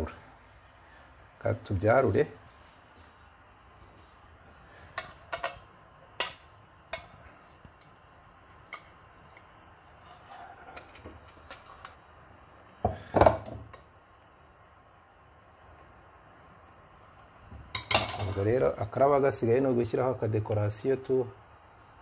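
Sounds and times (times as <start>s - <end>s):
metal tongs scraping a pan: 5.0s - 7.2s, 9.9s - 12.0s
cookware clattering: 17.8s - 18.4s.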